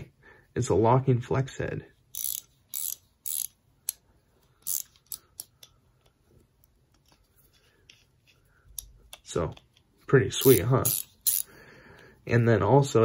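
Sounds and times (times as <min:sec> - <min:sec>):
ratcheting wrench bursts: 0:02.1 - 0:03.6, 0:04.6 - 0:05.5, 0:10.4 - 0:11.5.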